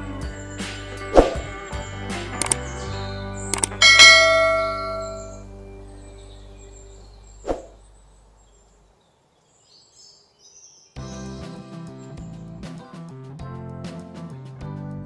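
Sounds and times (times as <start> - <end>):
mouse clicks: 2.4 - 2.6, 3.5 - 3.8
notification bell ding: 3.8 - 5.4.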